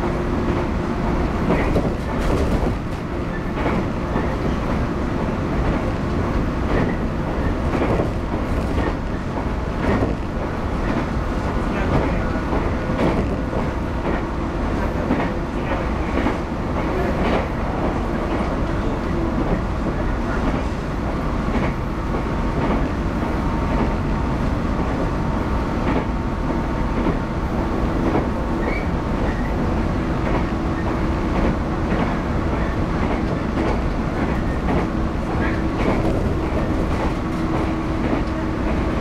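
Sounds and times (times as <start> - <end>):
train wheels rumbling on rail: 0.0 - 39.0
wheels clacking over rail joints: 30.2 - 38.8.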